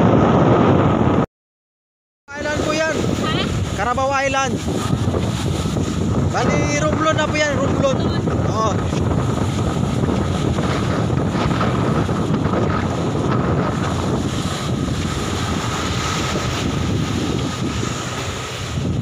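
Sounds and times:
wind buffeting microphone: 0.0s - 1.3s, 2.3s - 19.0s
waves breaking on beach: 2.3s - 19.0s.

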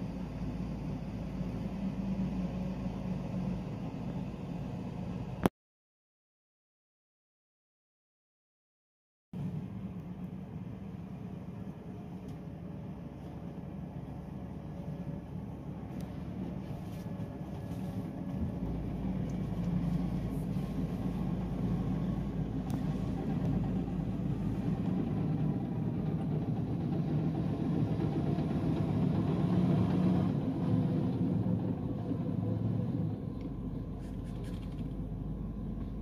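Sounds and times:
bulldozer diesel engine: 0.0s - 5.5s, 9.4s - 36.0s
hydraulic excavator running: 10.6s - 36.0s.

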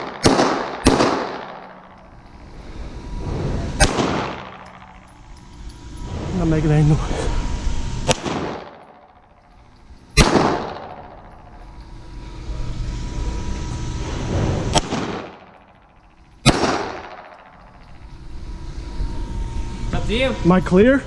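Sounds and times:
pistol shots echoing indoors: 0.0s - 1.6s.

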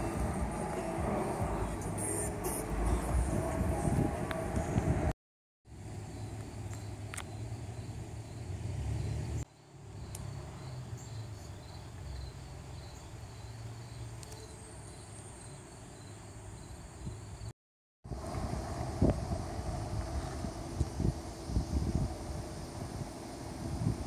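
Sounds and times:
low outdoor rumble: 0.0s - 5.1s, 18.1s - 24.0s
insects chirping in a trill: 5.8s - 17.5s.

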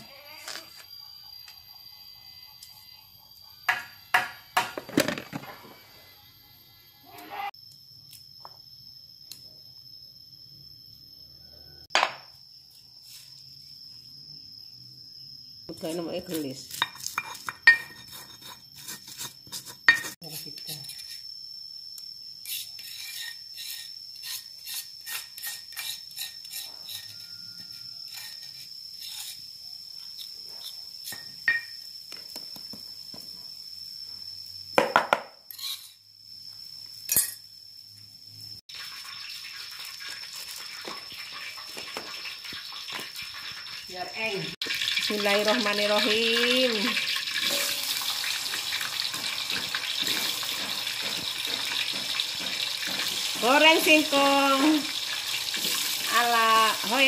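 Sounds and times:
faint high whine: 0.0s - 24.8s.

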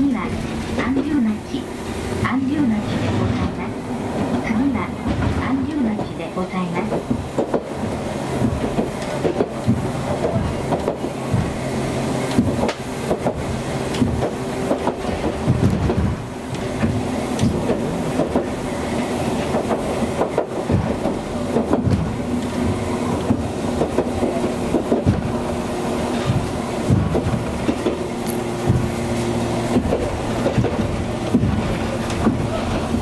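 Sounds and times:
streetcar running hum: 0.0s - 33.0s
wheels knocking over rail joints: 6.9s - 18.7s, 19.4s - 33.0s.

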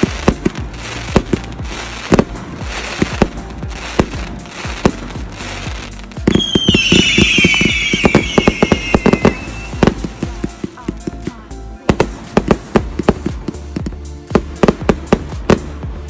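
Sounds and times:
crackle of bursting stars: 0.0s - 10.8s
firework cake firing bangs: 0.0s - 10.8s
firework whistles: 6.2s - 10.5s.

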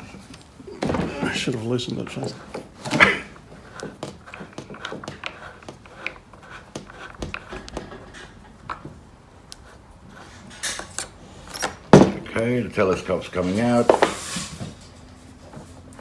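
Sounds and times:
clicks and rubbing of metal parts: 1.4s - 11.9s
metal scrape: 13.4s - 15.4s.

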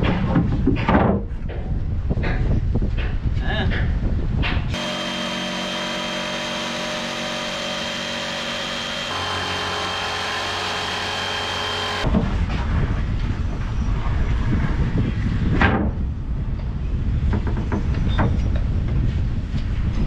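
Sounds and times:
jigsaw cutting plywood: 4.8s - 12.1s.

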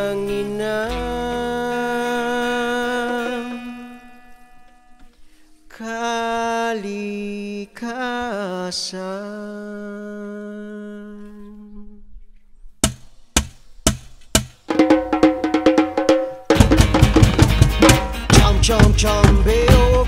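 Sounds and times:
cajon hand drum hits: 12.8s - 20.0s
man singing held notes: 18.2s - 20.0s.

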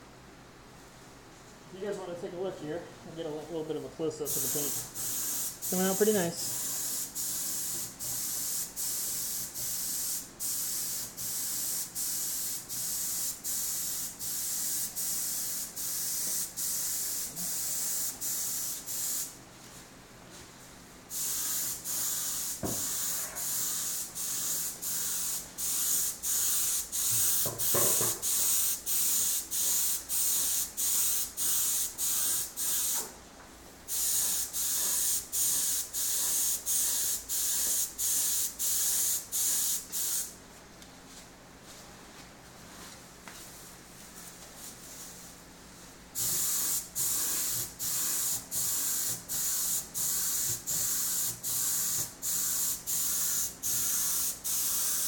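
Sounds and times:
spray gun hissing in pulses: 4.3s - 19.4s, 21.1s - 33.0s, 33.9s - 40.3s, 46.2s - 55.0s.

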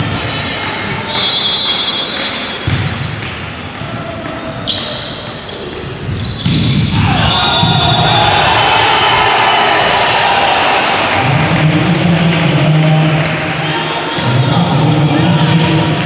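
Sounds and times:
volleyball hits: 2.5s - 5.0s
crowd cheering: 6.8s - 16.0s.

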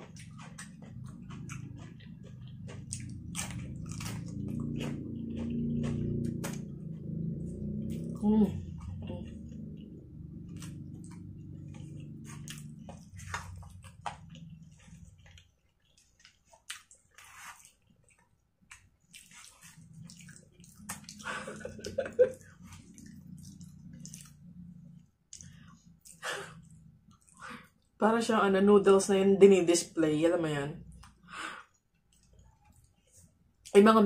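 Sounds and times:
low hum: 0.0s - 15.7s, 19.7s - 27.5s
wet chewing and slurping: 0.0s - 27.9s.

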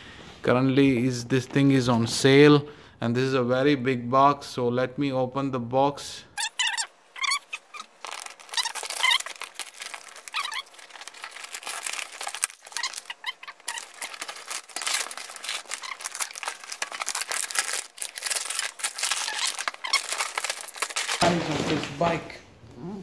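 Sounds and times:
packing tape and cardboard tearing: 6.4s - 22.1s.

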